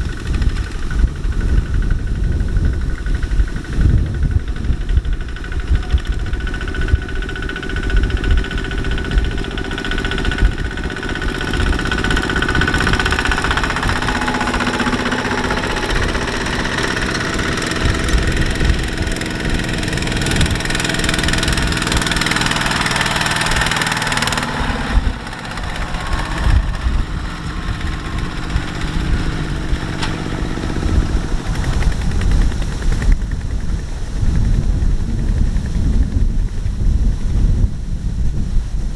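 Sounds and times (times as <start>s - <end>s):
diesel tractor engines chugging: 0.0s - 37.4s.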